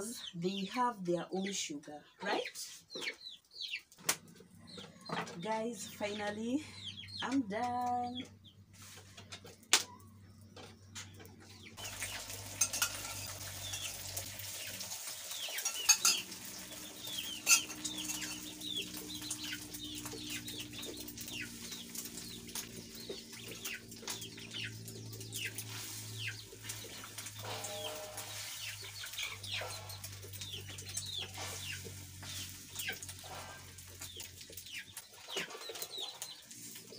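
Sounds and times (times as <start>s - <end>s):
chickens clucking and cheeping: 2.2s - 36.9s
metal spoon clinking on pan: 12.6s - 13.9s, 15.4s - 16.4s, 17.4s - 18.5s.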